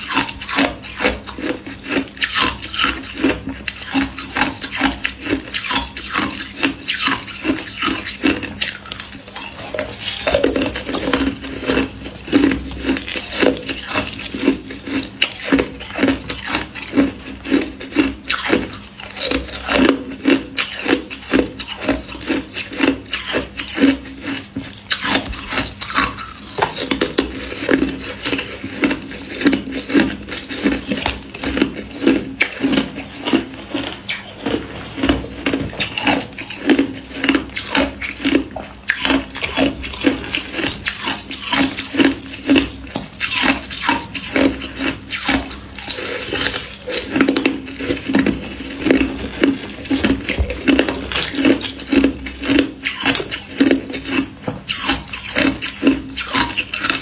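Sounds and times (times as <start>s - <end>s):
ice cracking and crunching: 8.6s - 16.9s.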